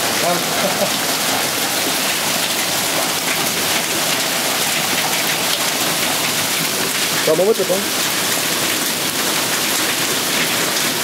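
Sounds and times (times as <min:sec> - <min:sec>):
hail and rain pelting: 0:00.0 - 0:11.0.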